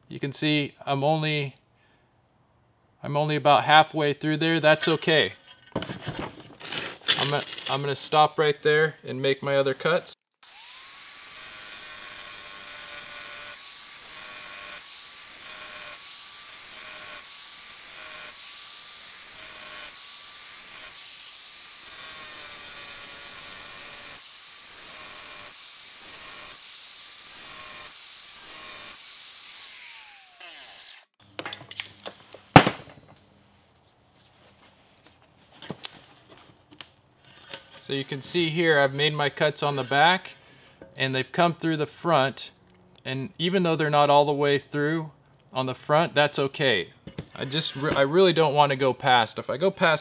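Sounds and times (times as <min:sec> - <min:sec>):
angle grinder cutting tile: 0:10.4 - 0:31.2, 0:47.4 - 0:48.1.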